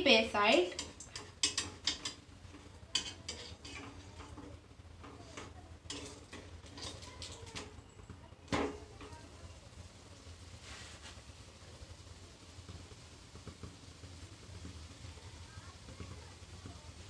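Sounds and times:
spatula scraping frying pan: 0.4s - 7.7s
pan knock: 8.5s - 9.2s.

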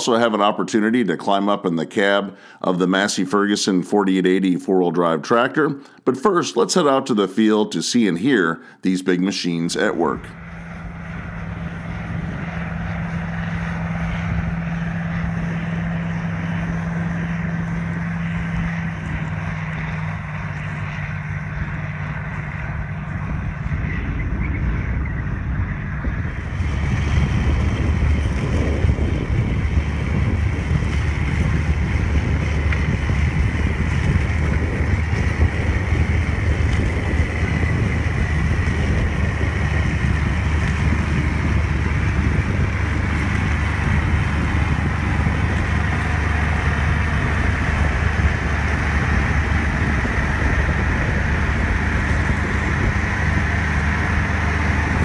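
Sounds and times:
tractor diesel engine under load: 0.0s - 55.0s.

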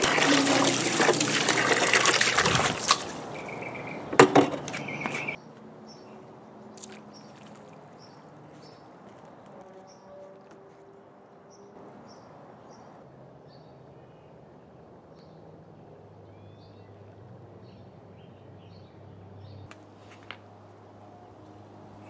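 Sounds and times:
small birds chirping: 2.4s - 10.3s, 11.5s - 13.7s.

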